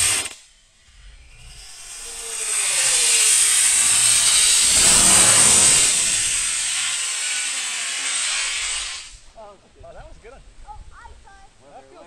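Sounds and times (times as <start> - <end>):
rocket motor rushing hiss: 0.0 - 9.2.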